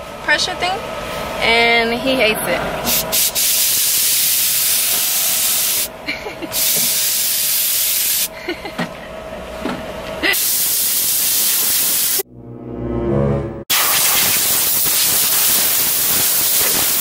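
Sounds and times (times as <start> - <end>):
compressed-air blow gun hissing: 2.9 - 5.9, 10.4 - 12.2, 13.8 - 17.0.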